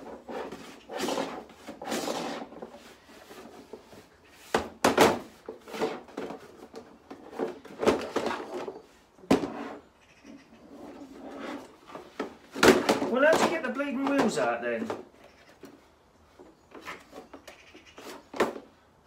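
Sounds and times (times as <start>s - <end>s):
plastic box rattling and scraping: 0.0s - 4.1s, 4.8s - 9.9s, 10.7s - 15.6s.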